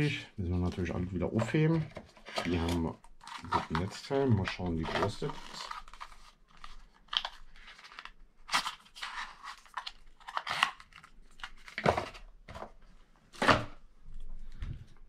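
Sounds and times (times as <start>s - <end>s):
cardboard and paper rustling: 0.6s - 12.8s.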